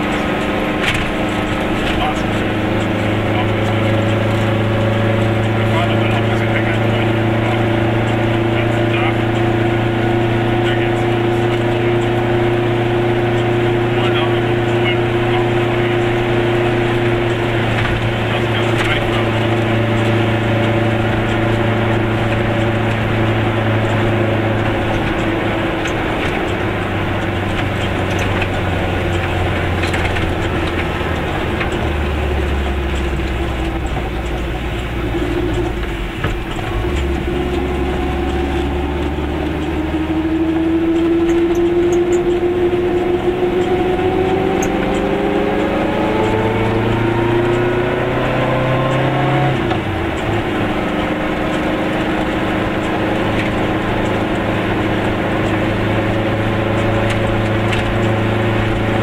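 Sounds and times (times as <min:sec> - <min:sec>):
small car engine running: 0:00.0 - 0:59.0.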